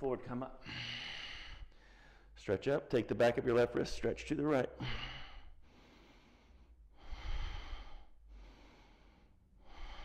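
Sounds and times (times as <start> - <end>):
man breathing deeply: 0.6 - 2.4, 4.8 - 10.0.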